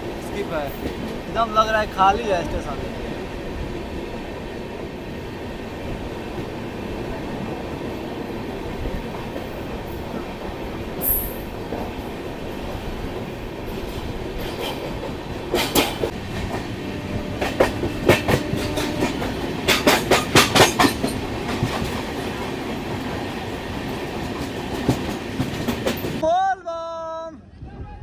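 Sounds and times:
train rumbling on track: 0.0s - 26.2s.

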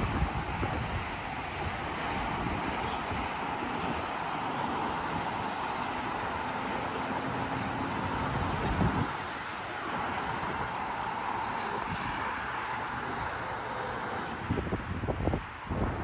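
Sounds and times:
road traffic: 0.0s - 16.0s
wind on microphone: 0.0s - 16.0s.

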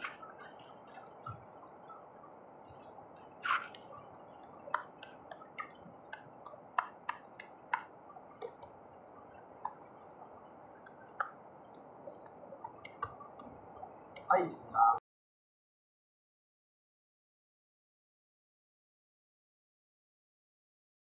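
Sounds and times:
steady low hiss: 0.0s - 15.0s
sharp clicks and taps: 3.5s - 8.8s, 10.8s - 14.3s.

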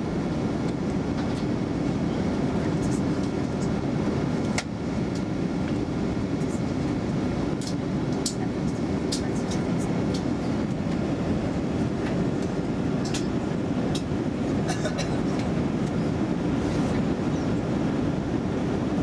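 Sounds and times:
aircraft cabin rumble: 0.0s - 19.0s.

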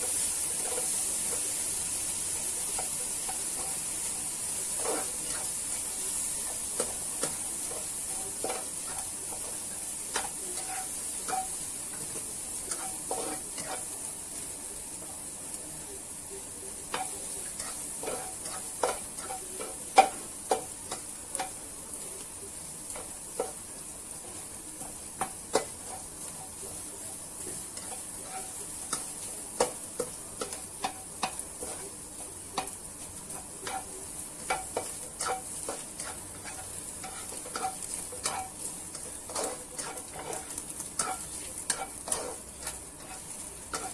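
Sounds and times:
spatula scraping and tapping pan: 0.0s - 1.6s, 2.6s - 14.0s, 16.9s - 21.6s, 22.8s - 26.7s, 27.4s - 43.9s
food sizzling in a pan: 0.0s - 43.9s.

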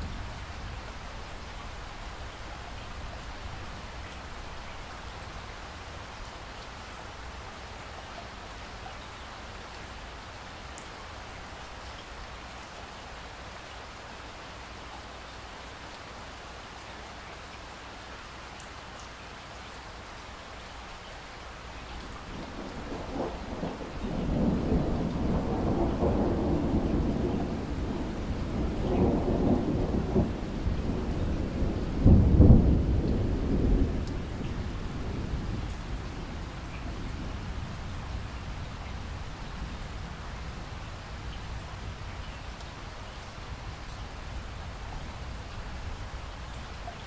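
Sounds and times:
steady rain hiss: 0.0s - 47.0s
rolling thunder: 22.2s - 40.0s.

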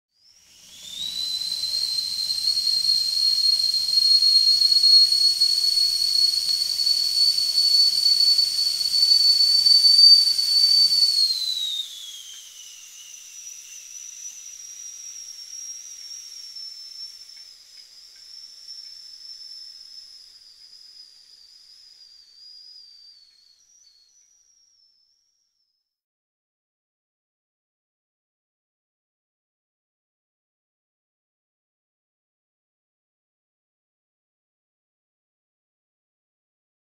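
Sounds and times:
kettle whistling: 0.2s - 25.2s
steam hissing: 0.4s - 20.0s.

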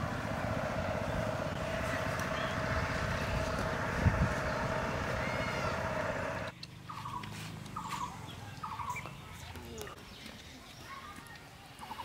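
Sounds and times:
engine drone with low rumble: 0.0s - 9.2s.

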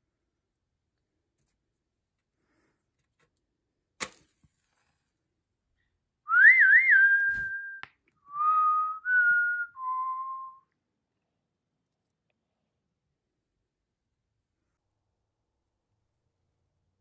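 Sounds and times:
person whistling a tune: 6.3s - 10.7s.

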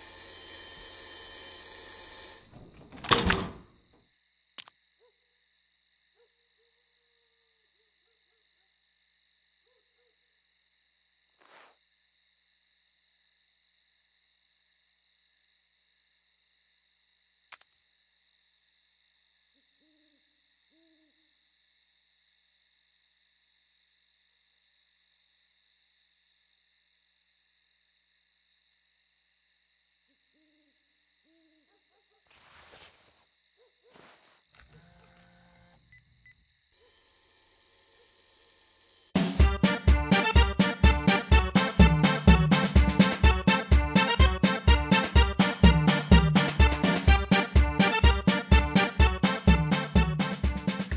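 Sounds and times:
high insect drone: 32.3s - 39.2s.

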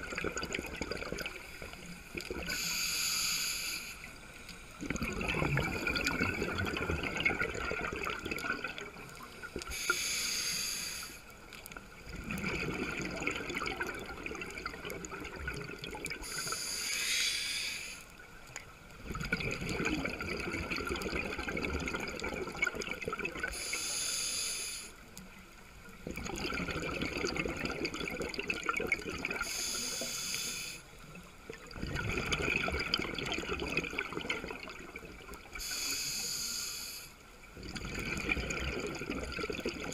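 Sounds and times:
bubbling exhaust underwater: 0.0s - 24.9s, 25.9s - 36.8s, 37.5s - 39.9s
regulator hissing inhale: 1.4s - 4.8s, 9.2s - 11.3s, 16.2s - 18.2s, 23.5s - 25.0s, 29.4s - 31.0s, 35.6s - 37.2s.

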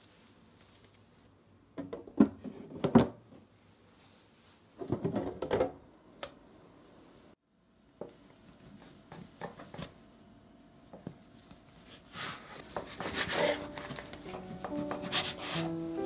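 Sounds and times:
scraper scraping wooden tabletop: 12.8s - 14.0s.

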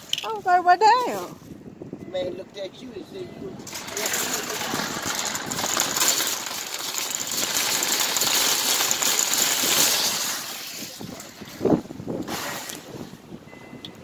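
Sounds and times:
shopping cart rattling on concrete: 3.6s - 12.8s.

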